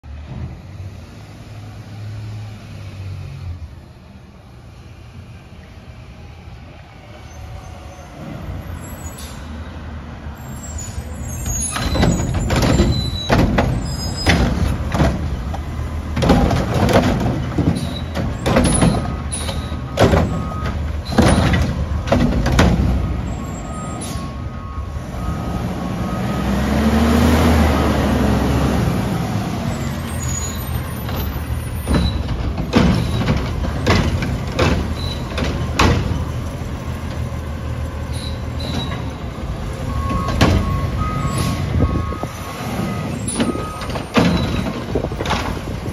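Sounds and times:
diesel engine revving: 10.4s - 45.9s
carts banging and clattering: 11.4s - 24.4s, 29.7s - 42.0s, 42.7s - 45.9s.

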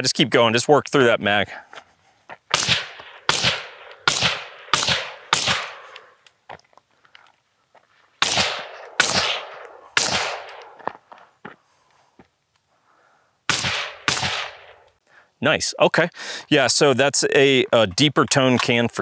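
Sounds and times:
suppressed rifle shots: 2.5s - 6.1s, 8.2s - 10.9s, 13.5s - 14.8s.

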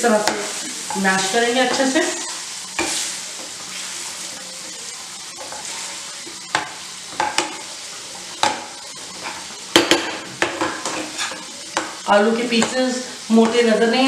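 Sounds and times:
oil sizzling: 0.0s - 14.0s
masher knocking on pan: 9.7s - 11.0s.

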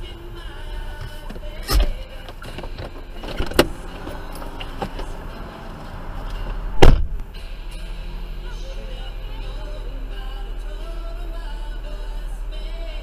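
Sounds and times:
low vehicle rumble: 0.0s - 13.0s
loud crash bang: 6.8s - 7.2s.

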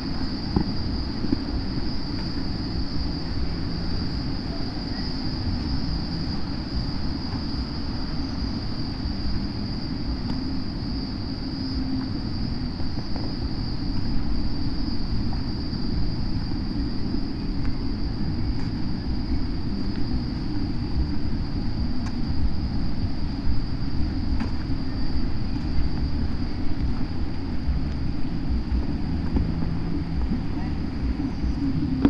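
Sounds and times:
high-pitched insect drone: 0.0s - 32.0s
low uneven rumble: 0.0s - 32.0s.

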